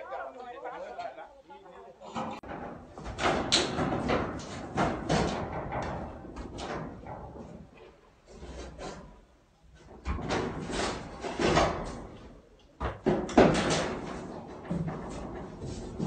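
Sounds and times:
demolition bangs and knocks: 2.2s - 7.8s, 9.8s - 16.0s.

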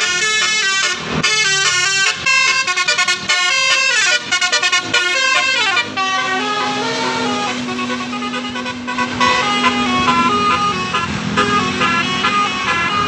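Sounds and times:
multi-tone musical bus horn: 0.0s - 13.0s.

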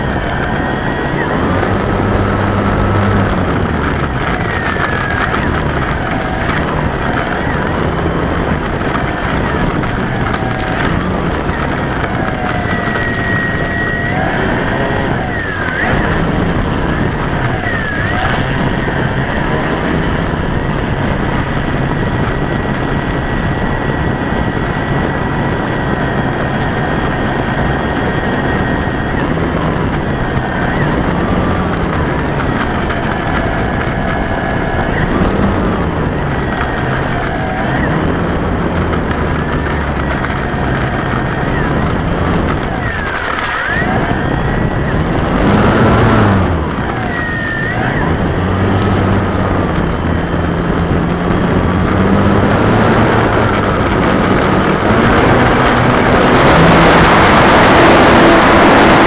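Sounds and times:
electric motor and propeller: 0.0s - 59.0s
propeller wind rush: 0.0s - 59.0s.

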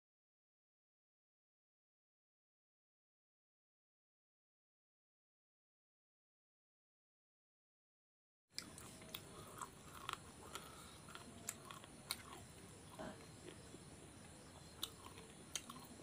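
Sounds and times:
man chewing food: 8.6s - 16.0s.

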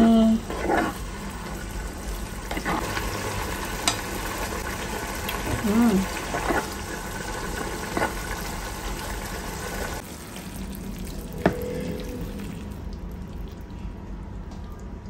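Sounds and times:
stir-fry sizzling in a pan: 0.0s - 10.8s
spatula stirring: 0.4s - 1.6s, 2.5s - 3.0s, 6.2s - 6.8s.

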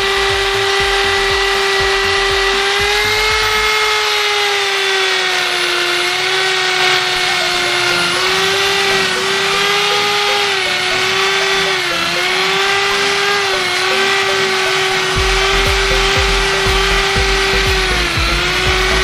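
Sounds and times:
electric drill motor whine: 0.0s - 19.0s.

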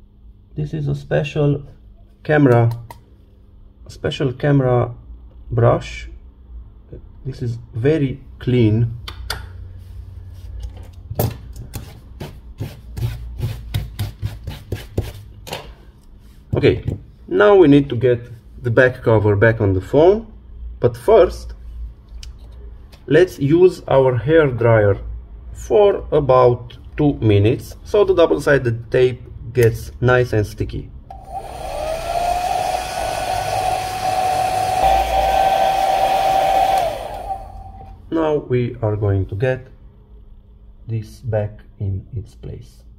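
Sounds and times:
hair dryer running: 31.1s - 37.9s.

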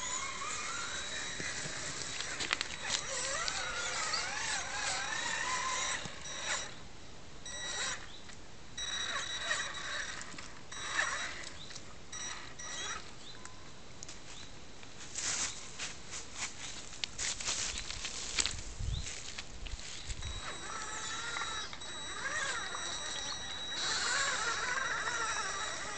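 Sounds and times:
tyres crackling over dry leaves: 0.0s - 5.8s, 14.3s - 25.9s
toy truck motor whining: 0.0s - 6.8s, 7.5s - 13.3s, 20.2s - 25.9s.

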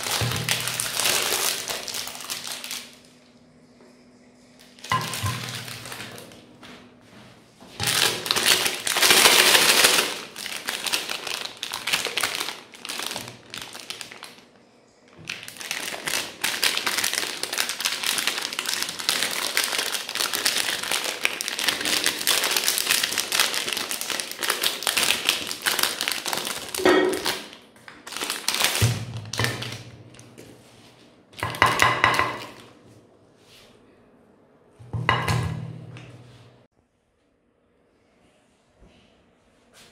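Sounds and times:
plastic wrapper crinkling: 0.0s - 3.2s, 4.7s - 6.4s, 7.8s - 14.5s, 15.1s - 30.3s.

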